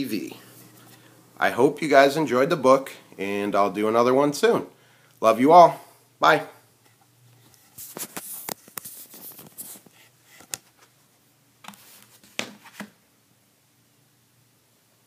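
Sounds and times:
phone handling clicks and rubs: 6.8 - 10.9, 11.6 - 13.0.

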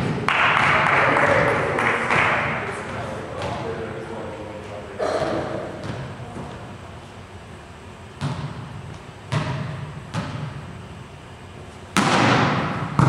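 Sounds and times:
volleyball thudding in gym: 0.0 - 4.0, 5.0 - 6.8, 8.1 - 11.0, 11.8 - 13.0
sharp volleyball hit: 5.0 - 6.1, 8.2 - 8.7, 9.3 - 10.6, 11.9 - 13.0.

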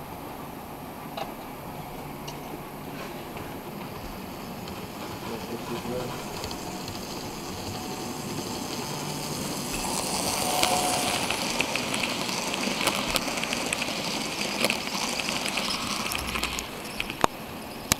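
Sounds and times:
model train wheels rushing on track: 0.0 - 17.9.

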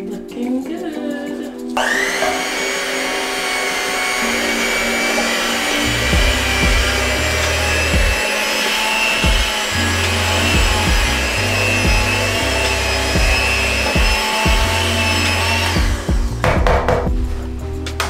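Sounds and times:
electric hand mixer running: 1.8 - 16.5.

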